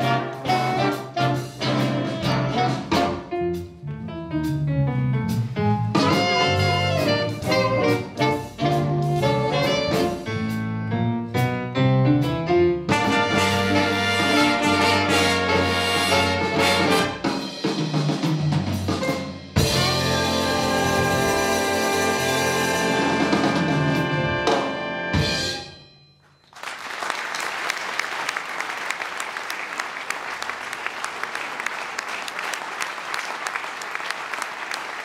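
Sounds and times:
big band playing: 0.0 - 26.0
audience applause: 26.4 - 35.0.

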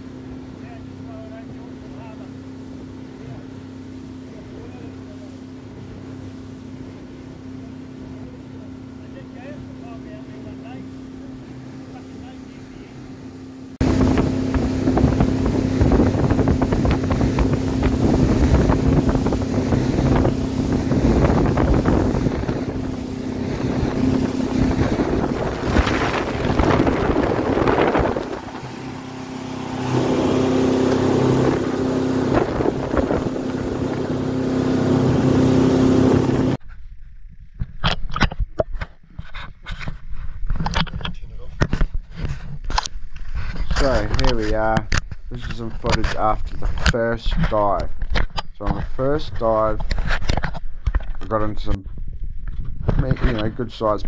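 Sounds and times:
water rushing along hull: 0.0 - 36.6
motorboat engine running: 0.0 - 54.0
wind on microphone: 13.8 - 54.0.

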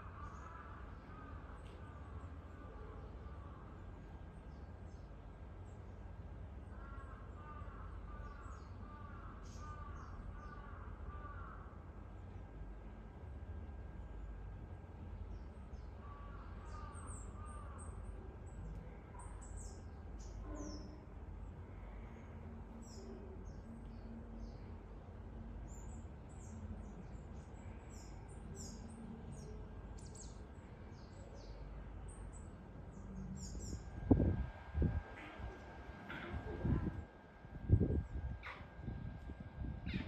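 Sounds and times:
steady low rumble: 21.3 - 40.0.

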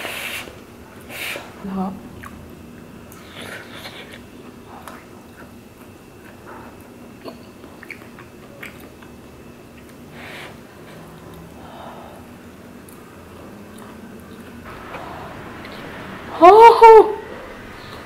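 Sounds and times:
puffs of breath: 0.0 - 1.6
person chewing: 2.2 - 10.0, 10.7 - 11.6, 12.4 - 14.7.

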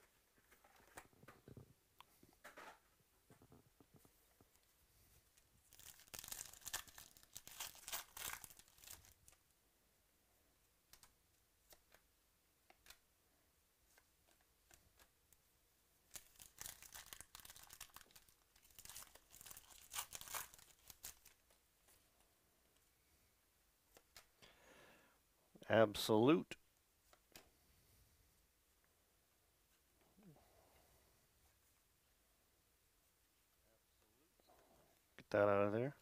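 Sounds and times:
foil wrappers tearing and crinkling: 5.7 - 9.2, 16.1 - 21.4.

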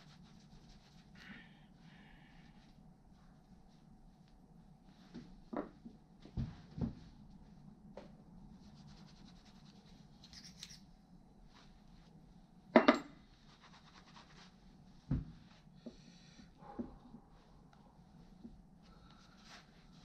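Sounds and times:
cloth rag rubbing metal parts: 8.6 - 10.8.

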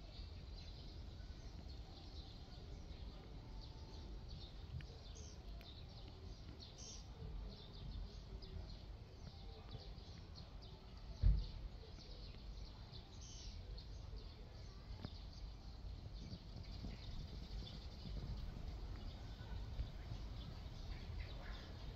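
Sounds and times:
small birds chirping: 0.0 - 21.9
dull thump: 11.2 - 11.6
low outdoor rumble: 11.4 - 21.9.

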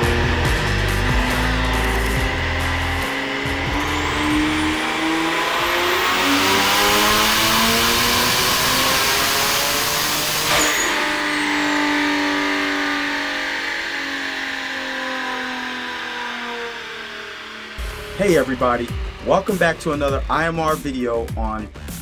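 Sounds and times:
sharp burst on throttle shut: 0.0 - 20.8
car engine at full throttle: 0.0 - 22.0
turbo whistle: 10.4 - 16.2.

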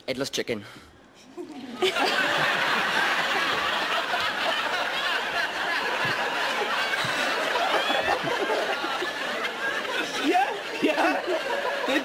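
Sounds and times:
audience laughing: 1.4 - 12.0.

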